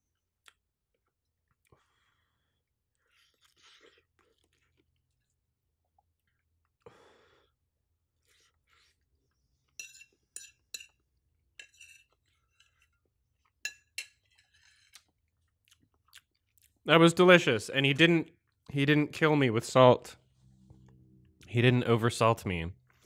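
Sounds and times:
faint chewing: 0:02.8 - 0:06.9, 0:12.0 - 0:16.8
fork clinking on plate: 0:09.8 - 0:11.0.

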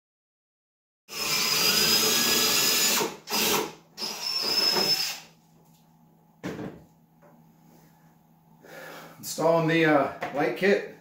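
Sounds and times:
cordless drill whining: 0:01.1 - 0:05.3.

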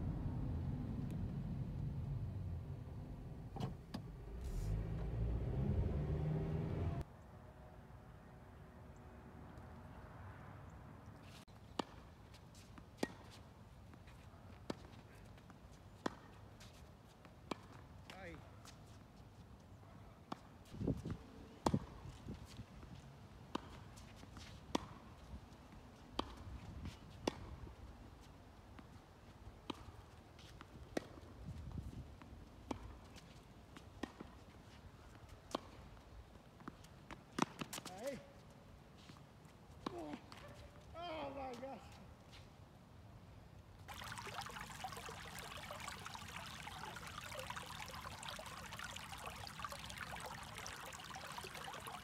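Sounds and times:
faint low rumble: 0:00.0 - 0:07.0
tennis ball bouncing on hard court: 0:24.7 - 0:25.0, 0:26.2 - 0:26.4, 0:27.2 - 0:27.6.

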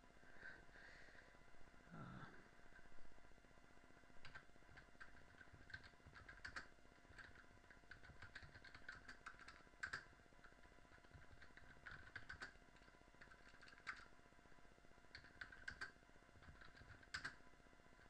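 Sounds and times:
faint keyboard typing: 0:04.2 - 0:14.2, 0:15.1 - 0:18.0.

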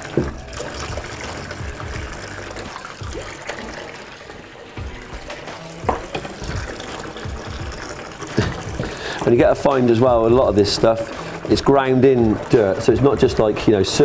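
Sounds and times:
water sloshing in a sink: 0:00.0 - 0:14.0.

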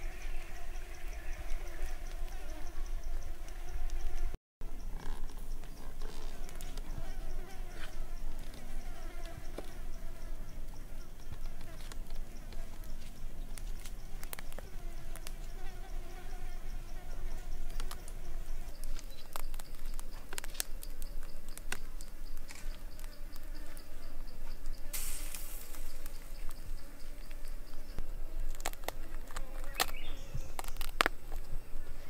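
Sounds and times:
fly buzzing: 0:00.0 - 0:32.0
insects chirping: 0:00.0 - 0:32.0.

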